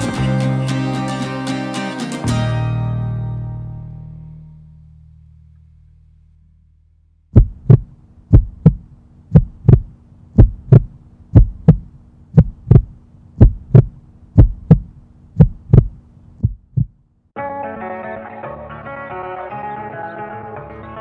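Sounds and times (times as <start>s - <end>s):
faint low hum: 3.4s - 17.3s
heartbeat double thump: 7.3s - 17.0s.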